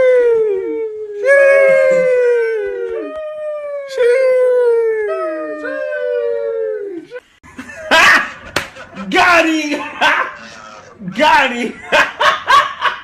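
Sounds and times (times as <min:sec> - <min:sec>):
dog howling: 0:00.0 - 0:07.2.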